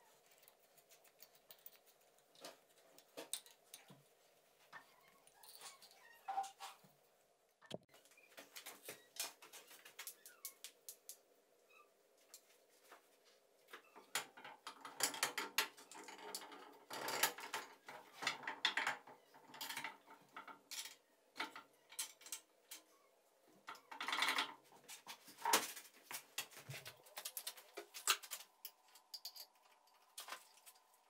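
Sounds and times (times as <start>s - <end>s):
metallic clicks and scrapes of tools: 27.2s - 30.9s.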